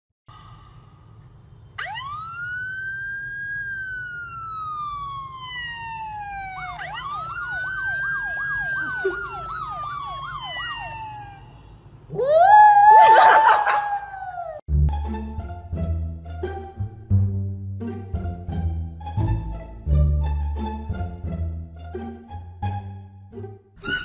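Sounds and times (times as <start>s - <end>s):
siren wailing: 1.8s - 14.6s
siren warbling yelp: 1.8s - 14.6s.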